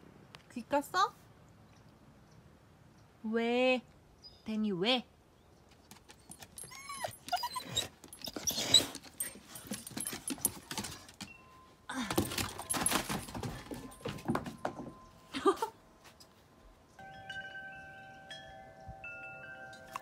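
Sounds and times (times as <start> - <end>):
collar tags jingling: 5.9 - 20.0
dog whining: 6.3 - 9.4
footsteps on wooden deck: 7.8 - 11.3, 12.0 - 15.1.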